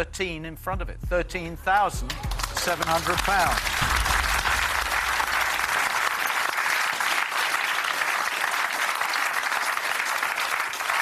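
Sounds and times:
studio crowd applauding: 2.0 - 11.0
low rumble: 3.4 - 6.4.

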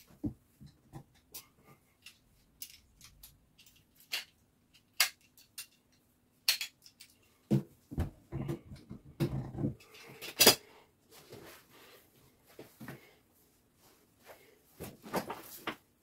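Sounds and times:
metallic clicks and clinks: 1.2 - 7.3.

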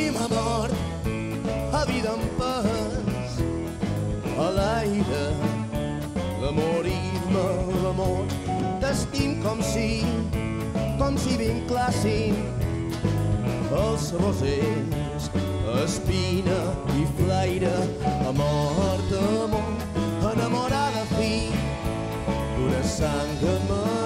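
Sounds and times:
live rock band playing: 0.0 - 24.0
man singing: 0.0 - 24.0.

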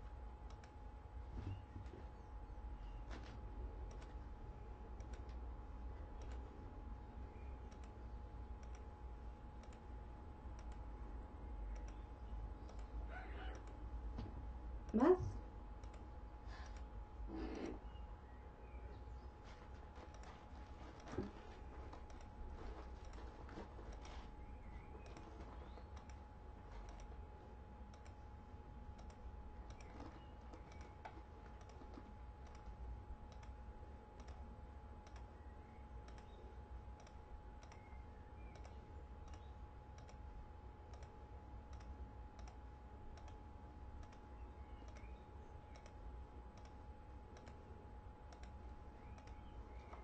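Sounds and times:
steady hum: 0.0 - 50.0
faint short clicks: 44.0 - 46.8.

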